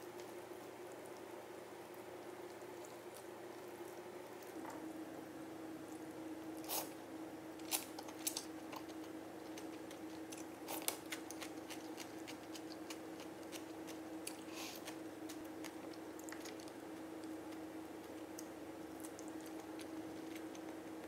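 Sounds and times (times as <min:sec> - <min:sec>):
faint steady hum: 0:00.0 - 0:21.0
quiet chewing: 0:00.1 - 0:04.8, 0:07.6 - 0:21.0.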